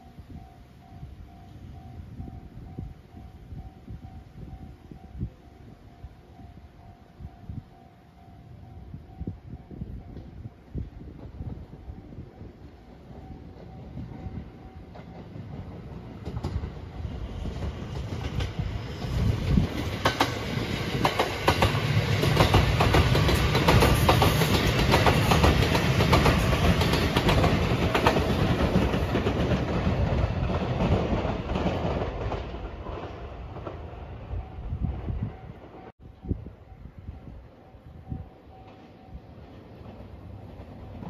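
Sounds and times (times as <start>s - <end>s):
electric train passing: 0.0s - 41.0s
wheels clicking over rail joints: 12.8s - 34.0s.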